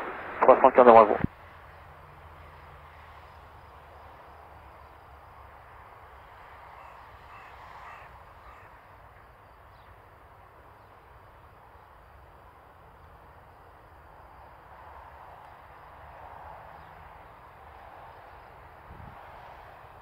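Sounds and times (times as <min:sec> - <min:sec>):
steady hiss and hum: 0:00.0 - 0:07.3
bird calling: 0:06.8 - 0:08.8.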